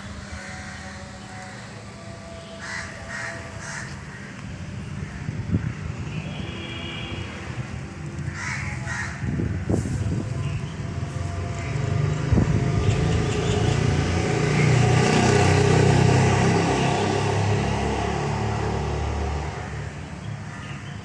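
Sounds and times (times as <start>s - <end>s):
crow cawing: 2.6s - 4.4s, 8.3s - 9.3s.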